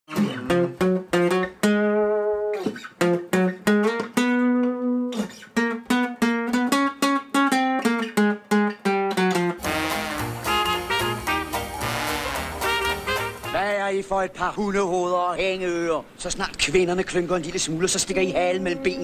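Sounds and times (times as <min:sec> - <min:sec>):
acoustic guitar plucked melody: 0:00.1 - 0:13.6.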